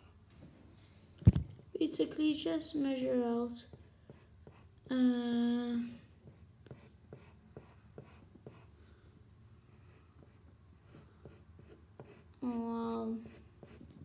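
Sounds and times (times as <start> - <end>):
pencil scratching on paper: 3.6 - 5.0, 6.2 - 9.0, 9.8 - 14.0.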